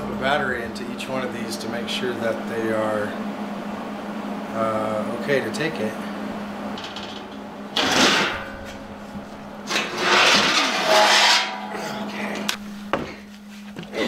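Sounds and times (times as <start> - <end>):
steel frame scraping a workbench: 9.6 - 12.2.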